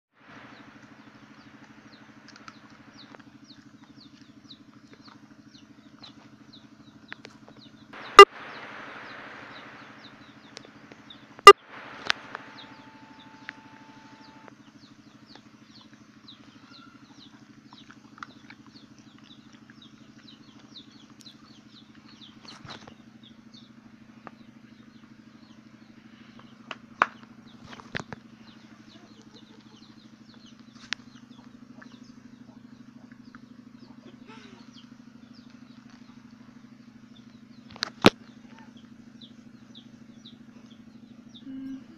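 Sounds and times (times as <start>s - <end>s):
motor humming: 0.2s - 23.0s.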